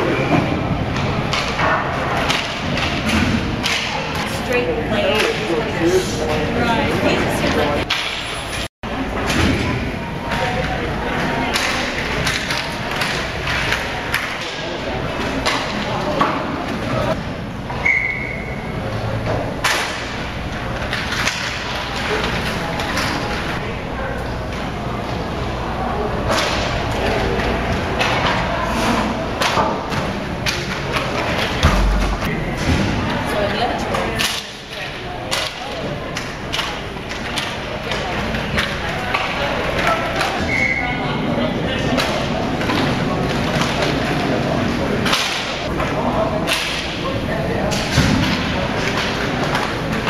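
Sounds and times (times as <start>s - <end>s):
hockey sticks and puck clacking: 0.9s - 4.3s, 10.3s - 16.4s, 19.3s - 23.6s, 33.9s - 40.7s, 41.9s - 44.3s, 45.0s - 50.0s
hockey sticks cracking on puck: 11.5s - 14.6s, 34.2s - 40.5s, 47.7s - 50.0s
heavy thud: 31.6s - 33.0s.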